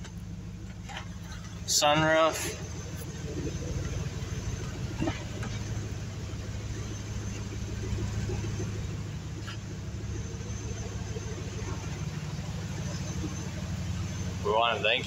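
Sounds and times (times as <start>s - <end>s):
engine idling: 0.0s - 15.0s.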